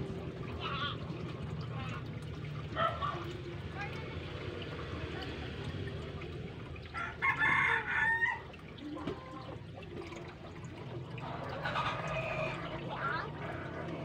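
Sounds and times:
water trickling: 0:00.0 - 0:14.0
rooster crowing: 0:07.0 - 0:08.4.

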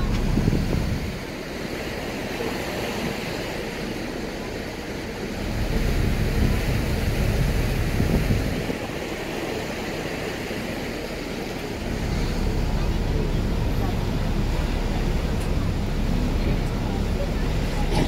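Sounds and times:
wind on microphone: 0:00.0 - 0:01.4, 0:05.4 - 0:10.2
ferry engine running: 0:00.0 - 0:18.0
water rushing along hull: 0:00.0 - 0:18.0.

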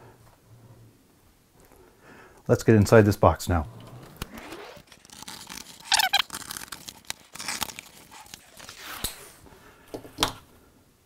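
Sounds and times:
packing tape ripping: 0:03.9 - 0:09.2
cardboard and plastic wrap rustling: 0:04.8 - 0:09.4.

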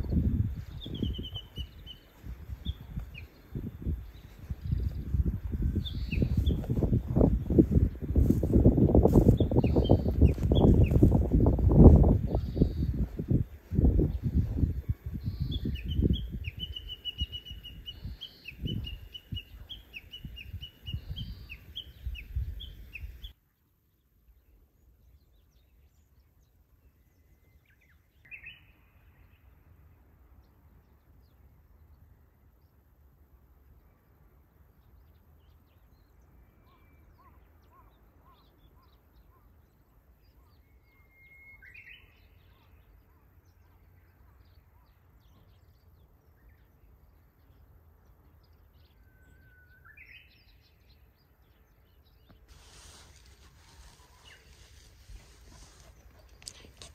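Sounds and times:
bush warbler singing: 0:00.0 - 0:23.4, 0:24.0 - 0:32.8, 0:33.8 - 0:56.9
wind rumbling on microphone: 0:00.0 - 0:23.4, 0:51.5 - 0:56.9.

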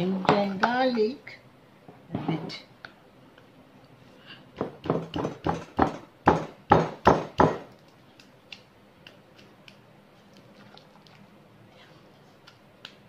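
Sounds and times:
pestle pounding in a mortar: 0:04.6 - 0:07.7.

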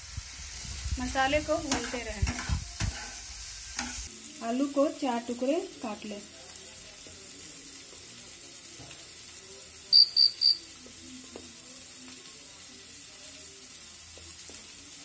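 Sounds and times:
short high-pitched beeps: 0:09.9 - 0:10.6.

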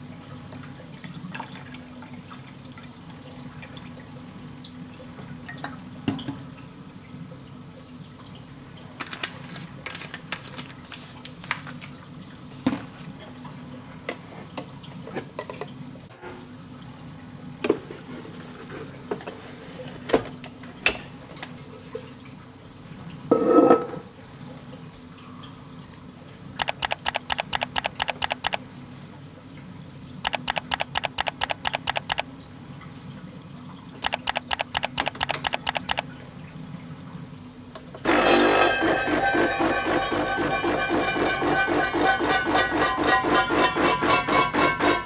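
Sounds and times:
small clicks: 0:26.6 - 0:28.6, 0:30.3 - 0:32.2, 0:34.0 - 0:36.0.

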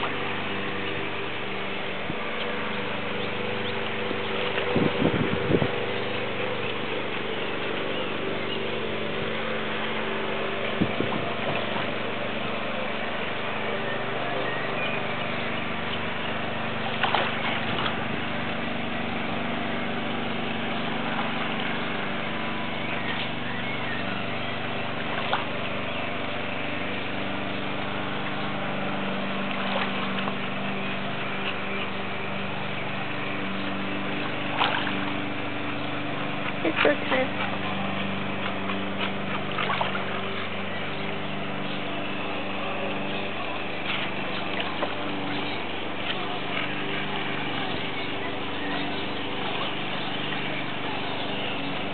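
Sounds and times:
light water splashes: 0:00.0 - 0:51.9
low hum and hiss: 0:00.0 - 0:51.9.

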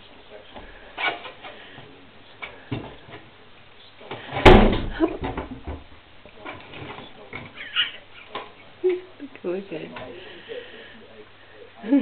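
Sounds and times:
heavy thud against window: 0:04.3 - 0:05.9.

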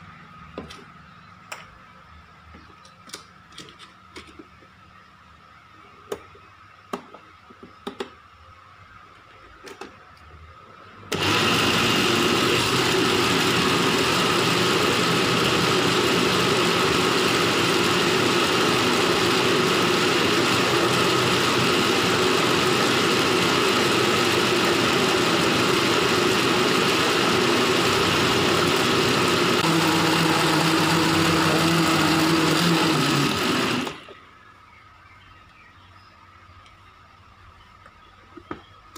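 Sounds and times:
blender motor running: 0:11.1 - 0:34.2.

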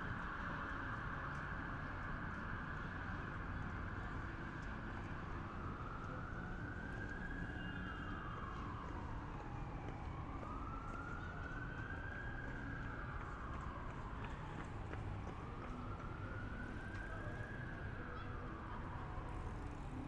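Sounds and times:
emergency siren wailing: 0:00.0 - 0:20.0.

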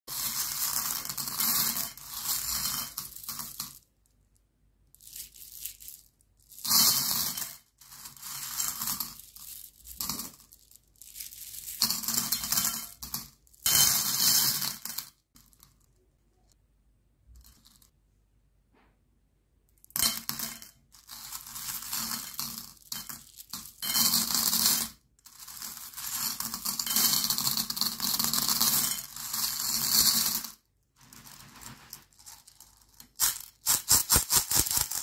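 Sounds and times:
candies clattering on a plate: 0:05.0 - 0:15.8, 0:19.9 - 0:35.0.

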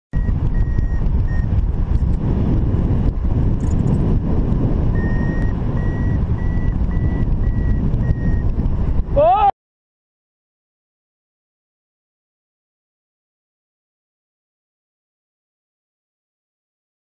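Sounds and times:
variometer short beeps: 0:00.1 - 0:01.6, 0:04.9 - 0:08.7
wind rushing over microphone: 0:00.1 - 0:09.5.

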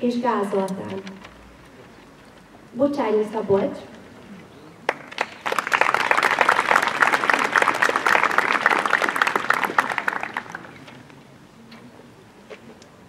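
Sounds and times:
audience applauding: 0:04.8 - 0:11.1.

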